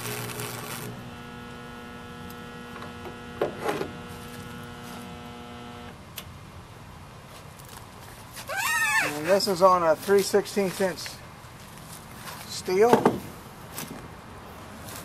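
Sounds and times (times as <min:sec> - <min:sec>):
welding arc crackle: 0:00.0 - 0:05.9
arc welder humming: 0:00.0 - 0:06.0.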